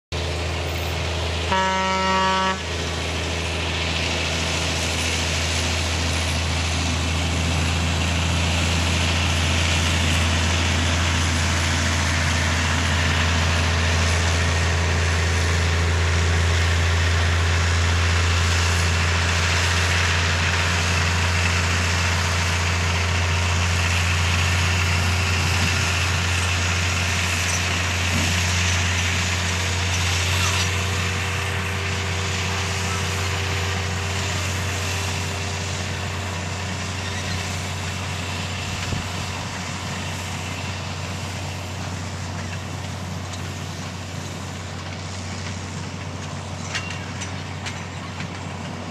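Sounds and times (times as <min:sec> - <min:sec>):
diesel engine running: 0:00.1 - 0:48.9
train cars rolling on track: 0:00.1 - 0:48.9
train horn blast: 0:01.4 - 0:02.7.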